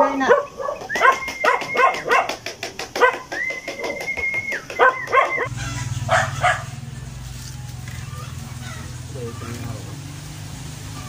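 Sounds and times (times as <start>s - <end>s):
dog yipping and whining: 0.0s - 2.3s, 4.7s - 6.7s.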